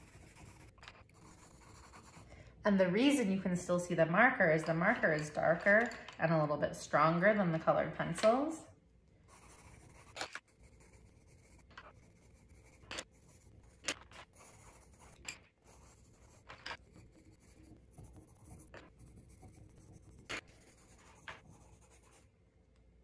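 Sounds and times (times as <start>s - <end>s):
pencil scratching on paper: 0.0s - 2.3s, 9.2s - 22.4s.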